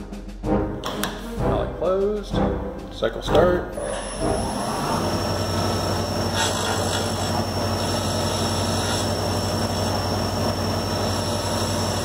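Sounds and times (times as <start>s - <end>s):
lathe machine hum: 3.7s - 12.0s
bright cutting hiss: 3.9s - 12.0s.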